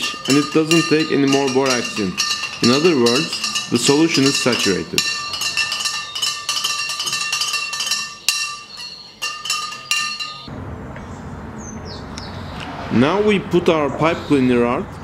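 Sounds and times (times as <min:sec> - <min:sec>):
spoon clinking in glass jar: 0:00.0 - 0:10.5
low background noise: 0:00.0 - 0:15.0.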